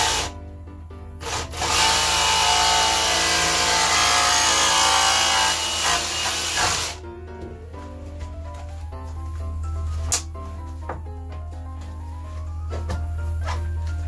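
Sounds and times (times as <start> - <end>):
power saw cutting plastic: 0.0 - 0.4, 1.2 - 7.0
background music: 0.0 - 14.0.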